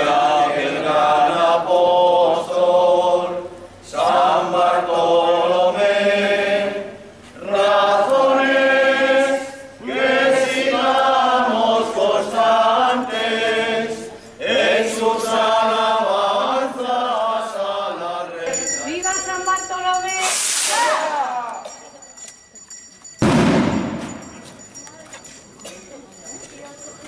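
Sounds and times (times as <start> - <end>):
group singing unaccompanied: 0.0 - 18.8.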